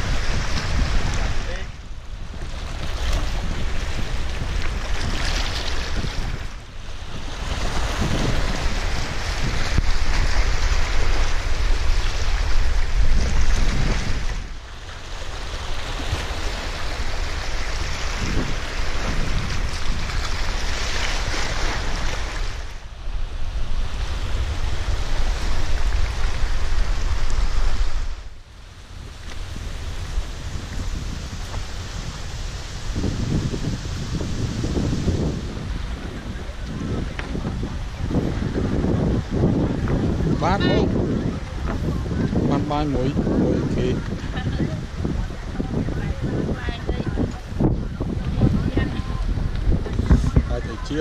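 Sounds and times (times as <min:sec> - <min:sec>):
small waves washing over rocks: 0:00.0 - 0:22.8
waves breaking on rocky shore: 0:00.0 - 0:51.0
wind rumbling on microphone: 0:00.0 - 0:51.0.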